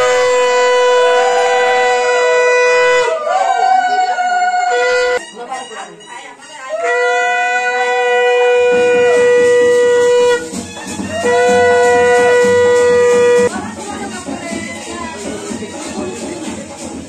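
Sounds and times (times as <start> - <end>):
conch shell blasts: 0.0 - 3.3, 4.7 - 13.6.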